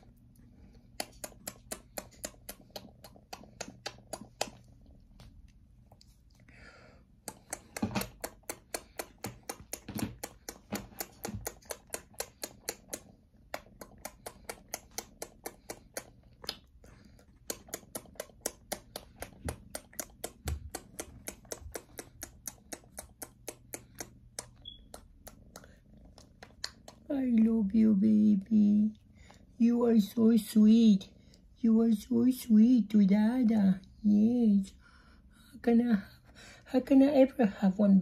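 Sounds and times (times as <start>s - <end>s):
man making kiss sounds: 0.9s - 4.5s.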